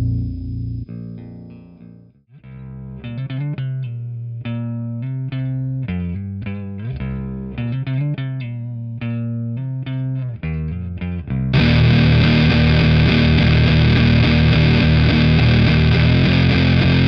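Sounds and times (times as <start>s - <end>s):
electric guitar riff: 0.0s - 2.0s, 11.5s - 17.0s.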